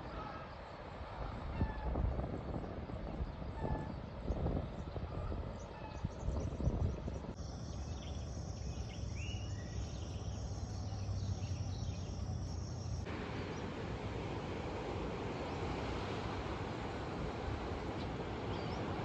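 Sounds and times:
insects droning: 0.0 - 19.0
bird chirps: 5.6 - 13.0.

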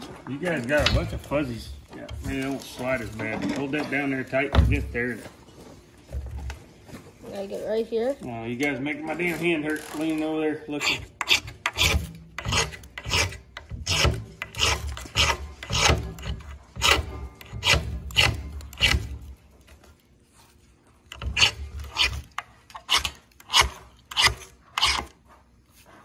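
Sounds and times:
knife scraping ferro rod: 10.7 - 19.2, 21.0 - 25.2.

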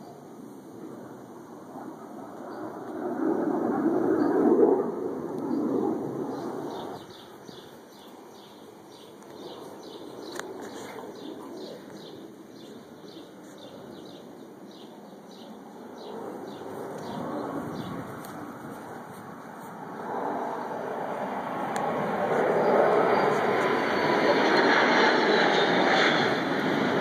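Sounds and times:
distant fighter jets rumbling: 0.0 - 27.0
small bird chirping: 5.5 - 18.9.

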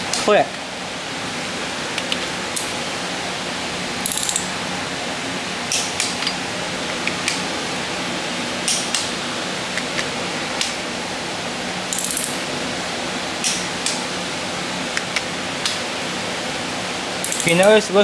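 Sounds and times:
ratchet clicks: 4.0 - 4.5, 11.9 - 12.4, 17.2 - 17.8
torque wrench clicks: 4.0 - 4.5, 11.9 - 12.4, 17.2 - 17.8.

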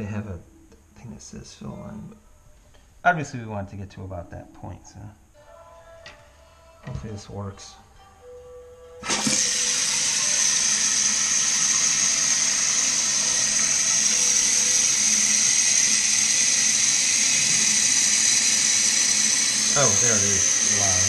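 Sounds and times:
toilet tank refilling hiss: 9.0 - 21.0.

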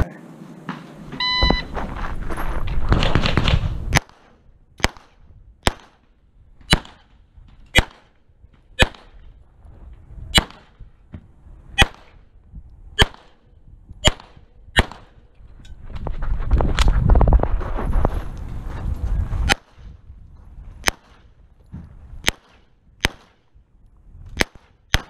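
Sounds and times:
pistol shots: 3.1 - 6.0, 6.7 - 7.1, 7.8 - 8.2, 8.8 - 9.2, 10.4 - 10.8, 11.8 - 12.2, 13.0 - 13.4, 14.0 - 15.2, 20.8 - 21.2, 22.2 - 23.4, 24.4 - 25.0.

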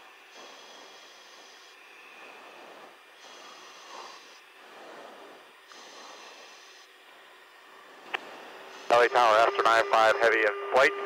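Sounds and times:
radio intercom hiss: 8.1 - 11.0.

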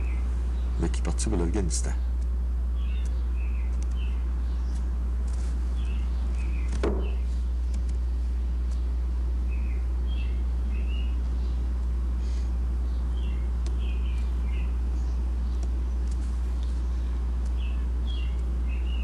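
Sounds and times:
small birds chirping: 0.0 - 19.0
steady low hum: 0.0 - 19.0
knock: 6.8 - 7.2.

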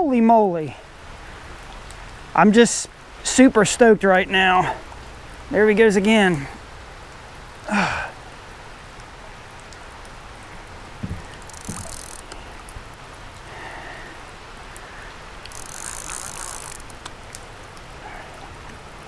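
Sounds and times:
rain pattering: 0.0 - 19.0
low grunt: 7.6 - 8.2
fishing reel drag paying out line: 11.4 - 12.4, 15.4 - 17.1.

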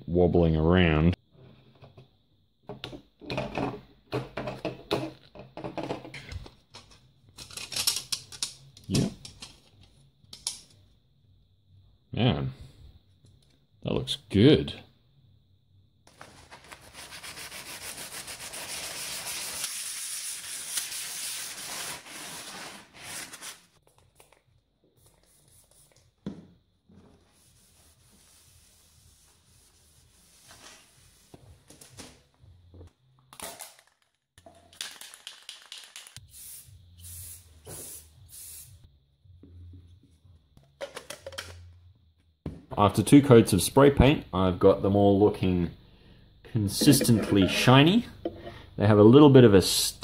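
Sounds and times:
sandpaper rubbing on metal mesh: 16.8 - 23.4.

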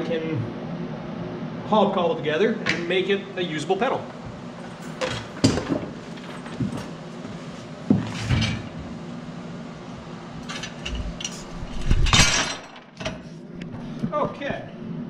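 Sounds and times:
metal parts clanking on workbench: 10.5 - 13.2.

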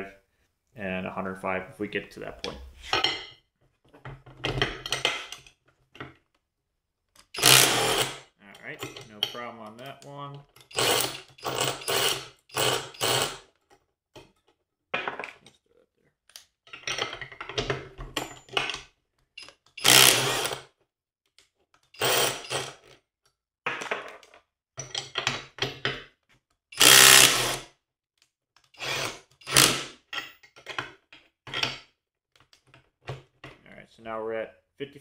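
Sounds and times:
impact driver hammering: 7.4 - 8.2, 19.8 - 20.6, 26.8 - 27.6, 28.9 - 30.0.

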